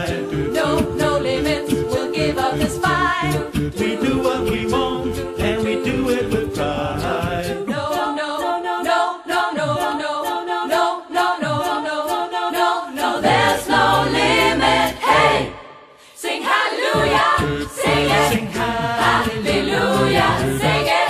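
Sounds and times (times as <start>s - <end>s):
deep bass line: 0.0s - 7.6s, 17.0s - 21.0s
steady clicking beat: 0.0s - 15.2s, 16.9s - 21.0s
choir singing in harmony: 0.0s - 21.0s.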